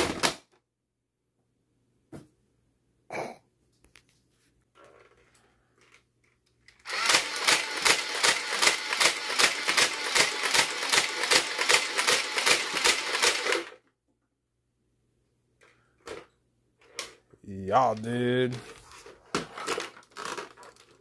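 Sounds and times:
toy blaster firing full-auto: 6.8 - 13.8.

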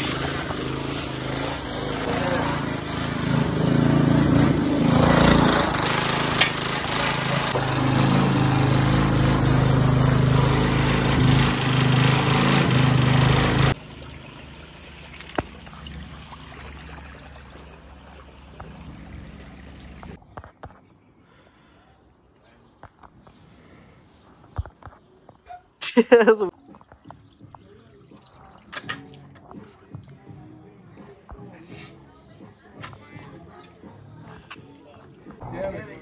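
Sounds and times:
engine-driven water pump running: 0.0 - 20.2
faint water trickle: 13.8 - 20.2, 27.0 - 29.3.

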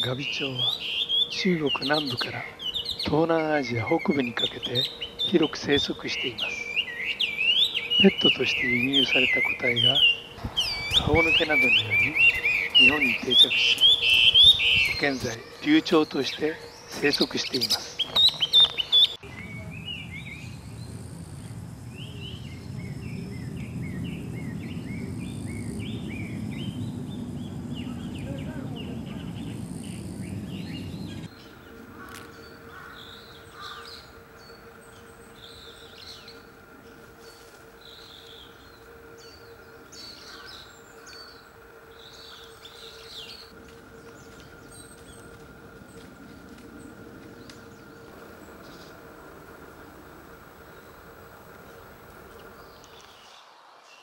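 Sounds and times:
faint steady hum: 0.0 - 53.4
high bird calls: 0.0 - 54.0
low rumble: 19.2 - 53.0.

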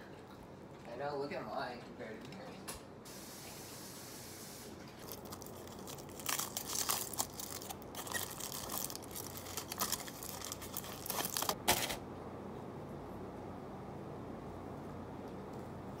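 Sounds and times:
aluminium foil crinkling: 4.8 - 12.0.

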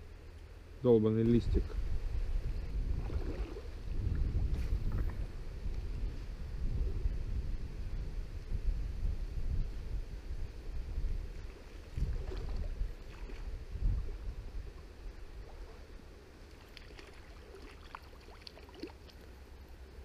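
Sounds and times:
wind gusting on microphone: 1.3 - 16.1.

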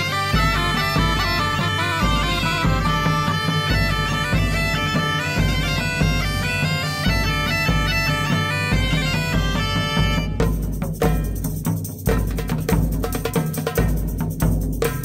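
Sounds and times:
bagpipe melody over drone: 0.0 - 10.4.

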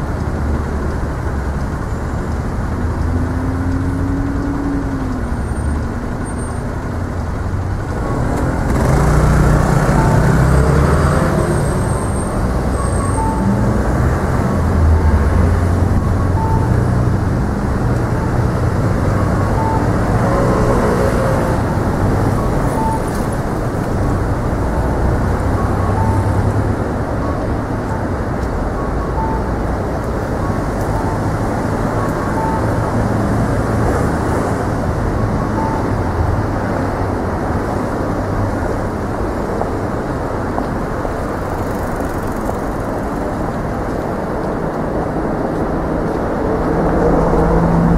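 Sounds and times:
traffic rumble: 0.0 - 47.9
short beep: 11.6 - 13.6, 16.0 - 16.8, 22.4 - 23.2.

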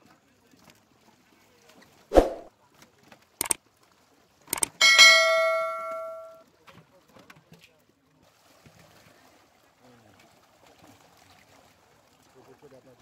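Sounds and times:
short whoosh: 2.1 - 2.5
mouse clicks: 4.6 - 4.8
notification bell ding: 4.6 - 6.4.

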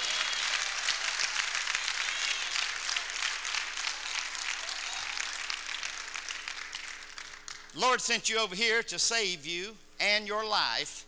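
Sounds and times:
crowd applauding: 0.0 - 8.0.

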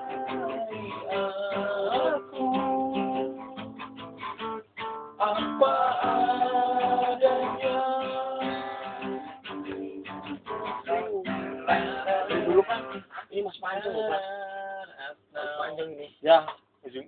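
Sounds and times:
person singing: 0.0 - 4.2, 5.2 - 13.0, 13.7 - 14.7
acoustic guitar strummed: 0.0 - 14.8.

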